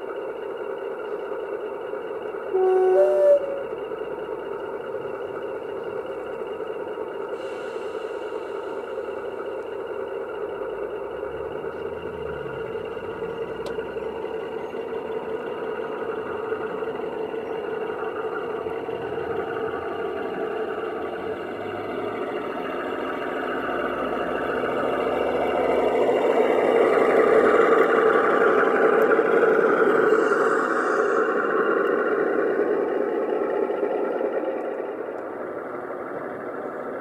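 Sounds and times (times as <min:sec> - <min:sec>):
model locomotive running: 0:00.0 - 0:37.0.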